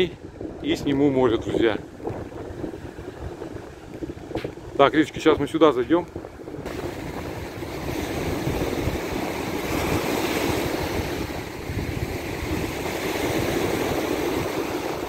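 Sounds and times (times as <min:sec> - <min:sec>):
surf washing on shore: 0:00.0 - 0:15.0
wind buffeting microphone: 0:00.0 - 0:15.0.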